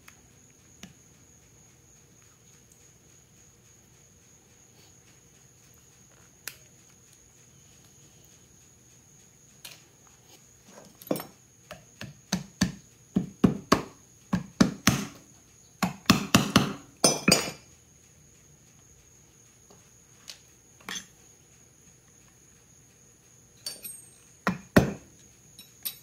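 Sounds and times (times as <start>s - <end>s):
hammer tapping on metal: 15.8s - 17.5s.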